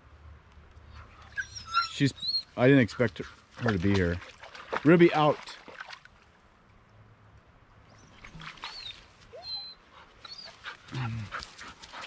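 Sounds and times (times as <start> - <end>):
dog whimpering: 1.3 - 2.5.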